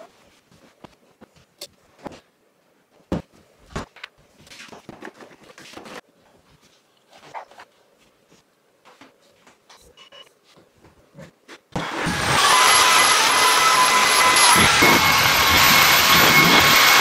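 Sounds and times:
rustling and shuffling: 0.0s - 11.8s.

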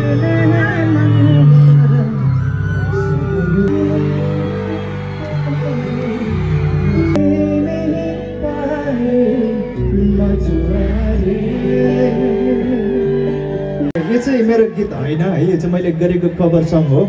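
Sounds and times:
person singing: 0.0s - 14.0s
loud live music through pa: 0.0s - 17.0s.

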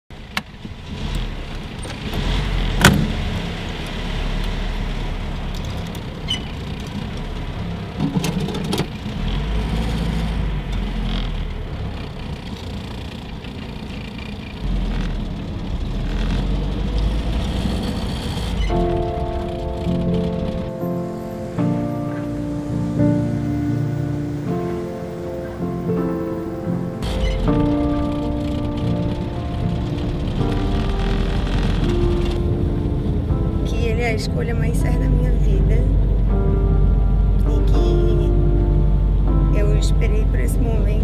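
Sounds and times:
car engine rumbling: 0.1s - 41.0s
sharp clicks and knocks: 8.0s - 8.9s.

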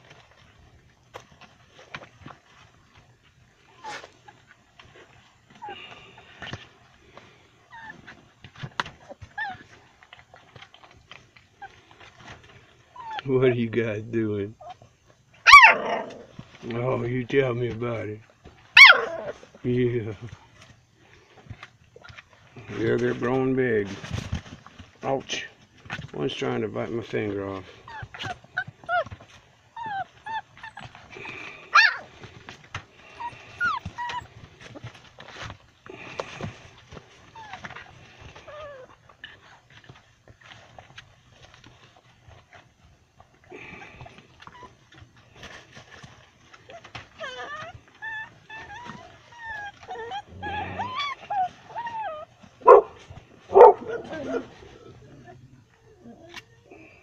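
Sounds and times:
puppies whimpering and yipping: 3.6s - 6.7s, 7.5s - 13.6s, 14.6s - 17.0s, 18.6s - 19.6s, 27.1s - 57.0s
dog barking: 15.5s - 15.9s, 18.8s - 19.2s, 52.6s - 54.4s.

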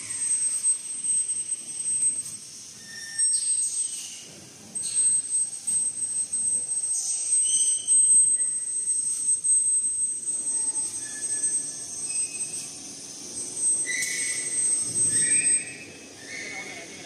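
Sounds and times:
packing machine whine: 8.3s - 16.9s.

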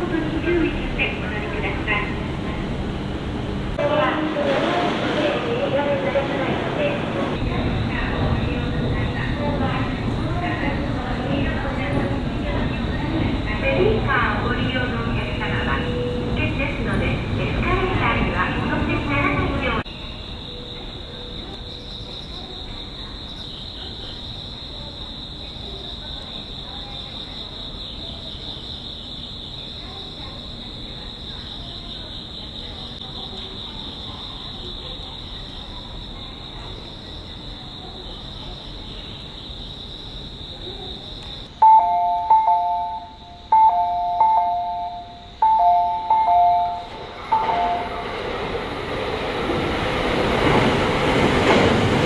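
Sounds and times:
insects trilling: 7.4s - 52.0s
station platform hiss: 41.5s - 48.9s.

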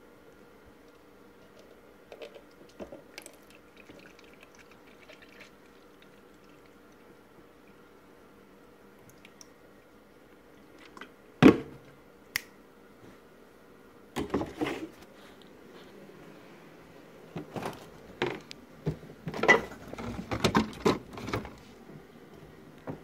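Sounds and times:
plastic bottle knocks and rattles: 17.4s - 21.5s.

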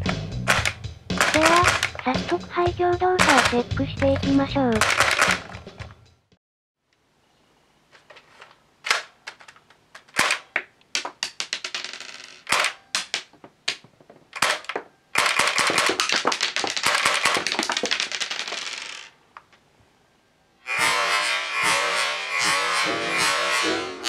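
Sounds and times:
airsoft gun firing: 0.5s - 2.0s, 3.2s - 3.6s, 15.2s - 16.2s, 16.8s - 17.6s.

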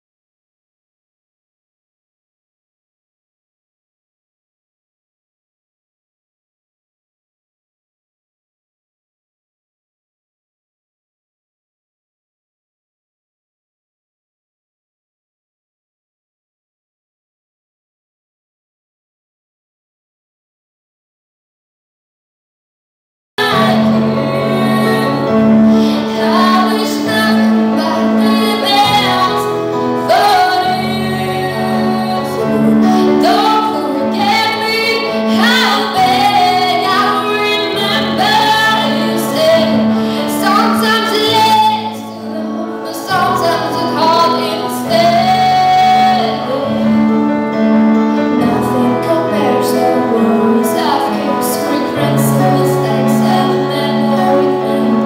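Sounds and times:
woman singing into microphone: 23.4s - 47.4s, 48.2s - 55.0s.

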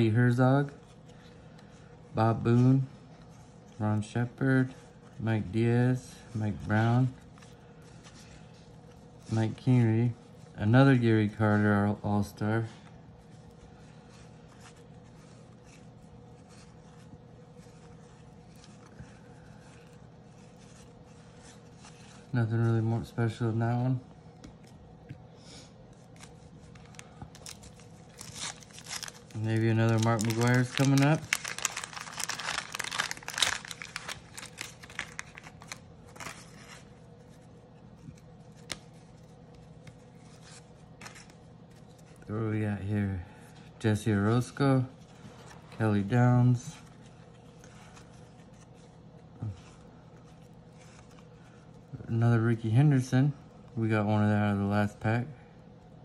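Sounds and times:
steady low hum: 0.0s - 56.0s
wax paper wrapper crackling: 25.8s - 42.6s.

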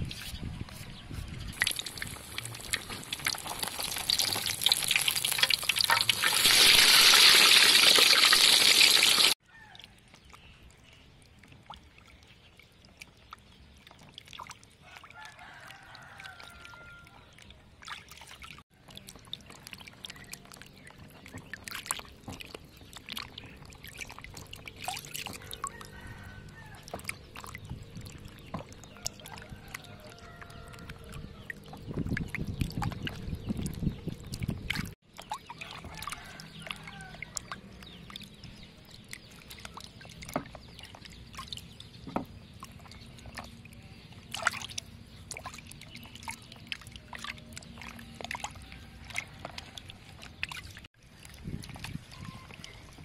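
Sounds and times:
hands rubbing vegetables in water: 0.0s - 9.4s
water pouring: 1.5s - 9.4s, 17.9s - 43.5s.

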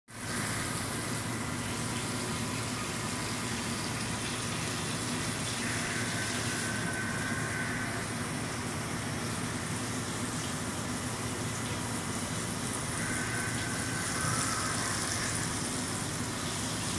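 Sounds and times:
coolant spray hissing: 9.2s - 16.9s.

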